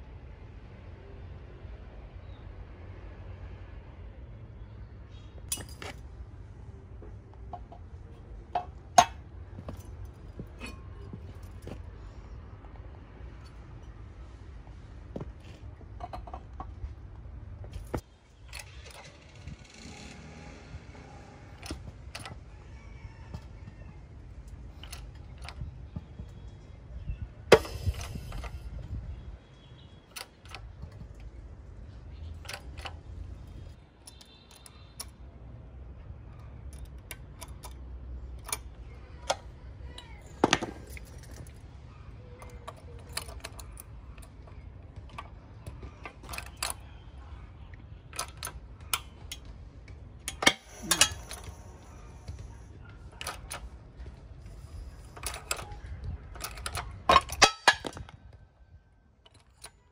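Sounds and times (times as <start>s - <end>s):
metallic clicks and clinks: 5.5s - 6.1s, 36.4s - 47.1s, 48.1s - 58.4s, 59.2s - 59.9s.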